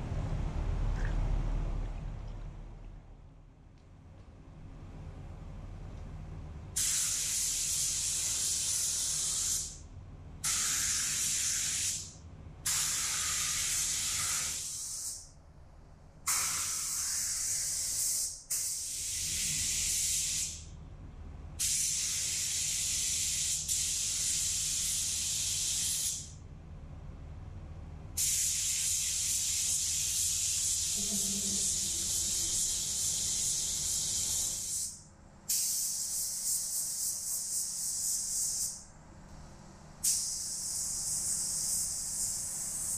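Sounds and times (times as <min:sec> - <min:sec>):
low hum: 0:00.0 - 0:06.8
spray gun hissing: 0:06.8 - 0:09.8, 0:10.4 - 0:15.2, 0:16.3 - 0:20.6, 0:21.6 - 0:26.3, 0:28.2 - 0:38.8, 0:40.0 - 0:42.9.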